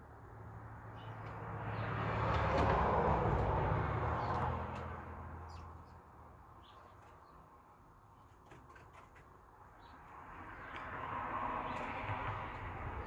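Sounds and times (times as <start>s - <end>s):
vehicle passing: 0.3s - 5.8s, 10.0s - 13.0s.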